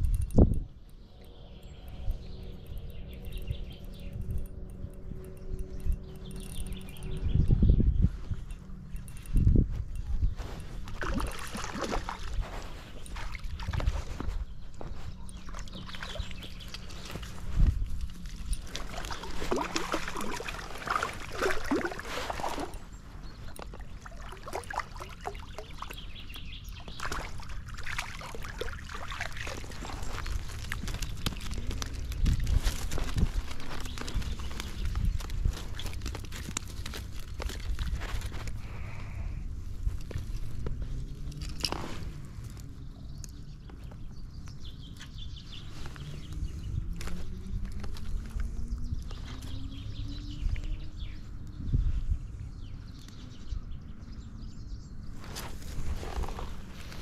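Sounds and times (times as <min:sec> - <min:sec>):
handling clicks and rustles: 0:00.0 - 0:51.6, 0:55.0 - 0:57.0
fish thrashing and water splashing: 0:10.8 - 0:14.4, 0:15.4 - 0:38.9.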